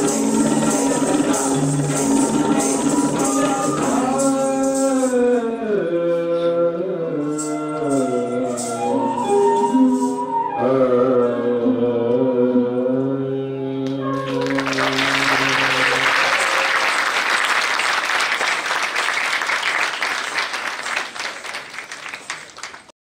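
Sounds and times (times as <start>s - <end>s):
dance music: 0.0s - 4.4s
audience applauding: 14.1s - 23.0s.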